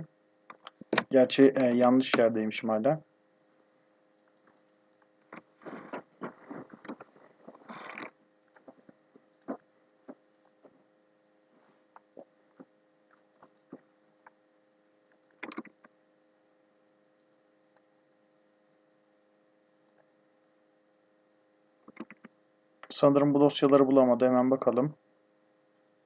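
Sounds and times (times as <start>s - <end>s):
faint electrical hum: 0.0s - 26.0s
mouse clicks: 0.5s - 1.1s, 3.5s - 5.4s, 15.1s - 15.9s, 19.8s - 20.1s
keyboard keystrokes: 15.1s - 15.9s, 21.9s - 22.3s.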